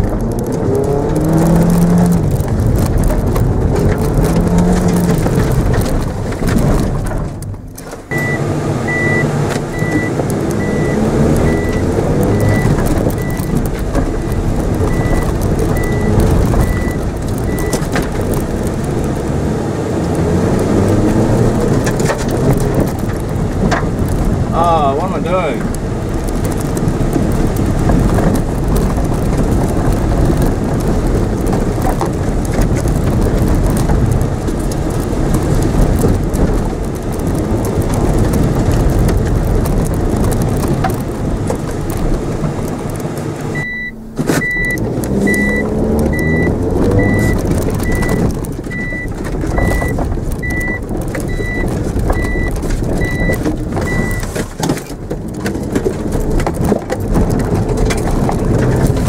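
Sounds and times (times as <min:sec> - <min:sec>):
car engine and tyres rumbling: 0:00.0 - 0:59.0
high electronic beeps: 0:08.1 - 0:13.6, 0:14.2 - 0:15.2, 0:15.8 - 0:17.8, 0:43.6 - 0:51.6.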